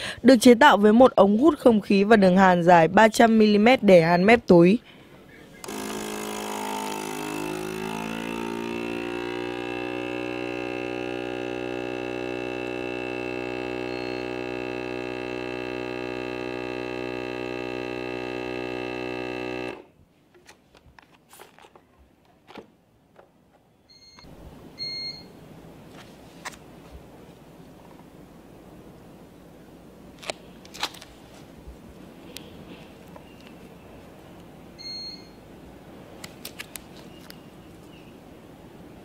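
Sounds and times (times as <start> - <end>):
vacuum sealer pump humming: 5.6 - 19.9
short electronic beeps: 13.8 - 14.4, 23.9 - 25.3, 34.8 - 35.4.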